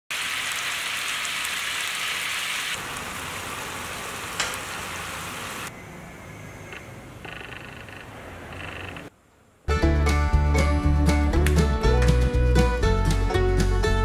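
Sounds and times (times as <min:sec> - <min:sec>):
food sizzling in a pan: 0:00.1 - 0:05.7.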